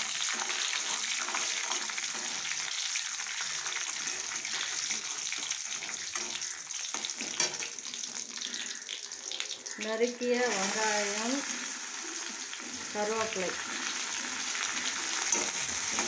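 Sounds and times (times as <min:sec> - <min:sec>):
seeds sizzling in hot oil: 0:00.0 - 0:16.0
metal ladle scraping pan: 0:14.9 - 0:16.0.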